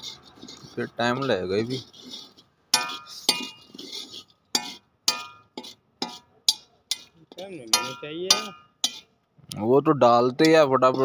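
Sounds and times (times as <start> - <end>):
metal rod clinking against iron pan: 2.7 - 9.1, 10.4 - 11.0.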